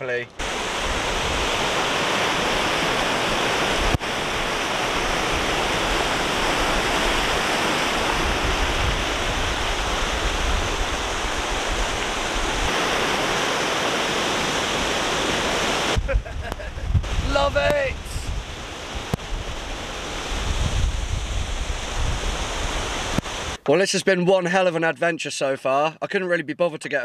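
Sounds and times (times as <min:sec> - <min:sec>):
river rushing over rocks: 0:00.4 - 0:16.0.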